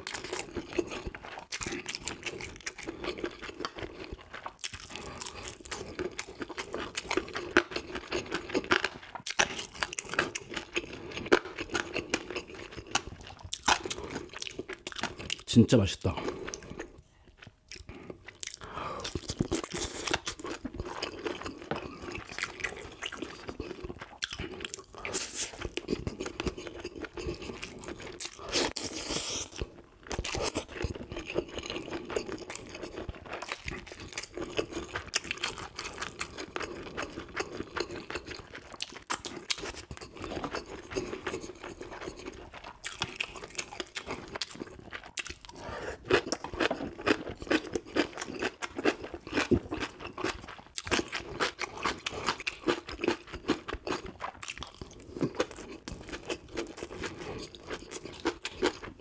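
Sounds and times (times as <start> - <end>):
crunching and chewing fish: 0.0 - 59.0.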